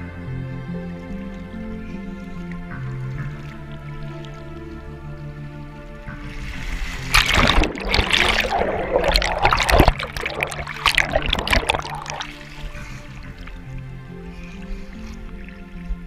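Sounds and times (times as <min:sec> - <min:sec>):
river water splashing: 0:00.6 - 0:16.0.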